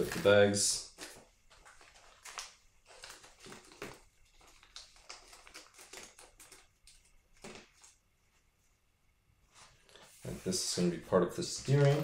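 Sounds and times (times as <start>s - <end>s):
plastic bags crinkling: 0.0s - 8.0s.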